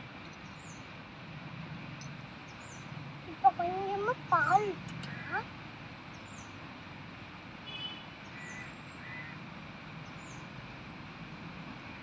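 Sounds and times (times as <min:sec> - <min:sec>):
birds chirping: 0:02.4 - 0:05.4.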